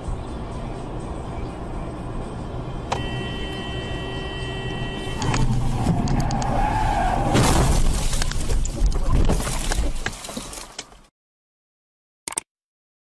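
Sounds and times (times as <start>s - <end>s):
car road noise rumble: 0.0s - 10.0s
click: 12.3s - 12.5s.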